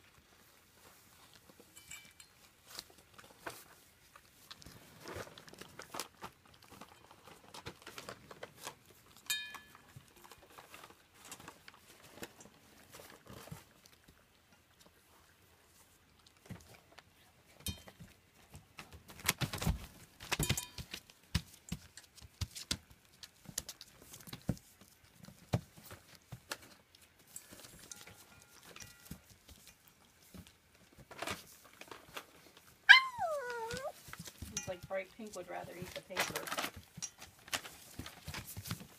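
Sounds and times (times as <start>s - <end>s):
metal bowls clinking: 20.4s - 20.8s, 34.5s - 35.4s
puppy whining: 32.8s - 34.1s.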